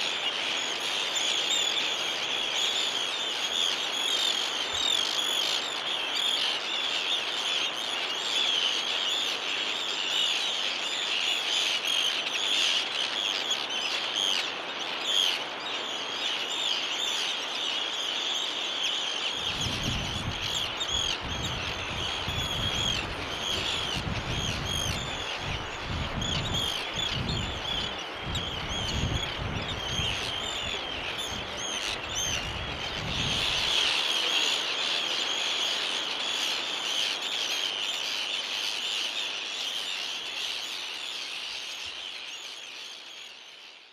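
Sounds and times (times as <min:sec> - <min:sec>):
terns calling harshly: 0:00.0 - 0:43.9
wind buffeting microphone: 0:19.4 - 0:34.0.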